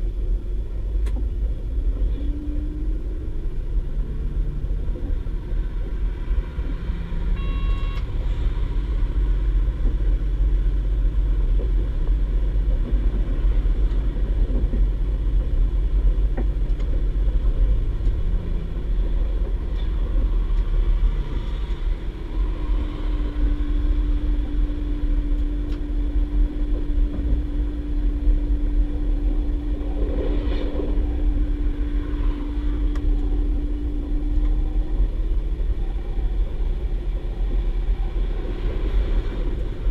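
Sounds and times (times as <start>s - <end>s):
steady hum: 0.0s - 39.9s
train diesel engine rumble: 0.0s - 39.9s
wheels on track: 0.0s - 39.9s
short high tone: 7.4s - 8.1s.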